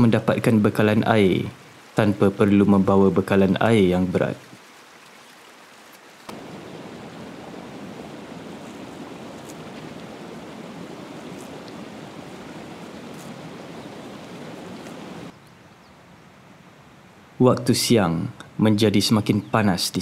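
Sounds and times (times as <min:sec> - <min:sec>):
stream water rushing: 0:00.0 - 0:15.4.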